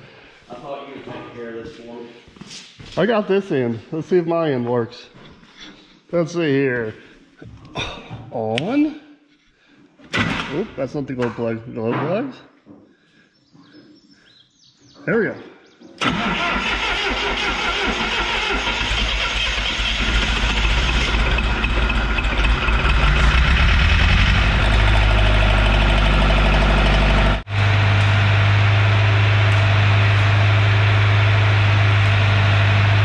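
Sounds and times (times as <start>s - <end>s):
diesel welder engine droning: 16.0s - 33.0s.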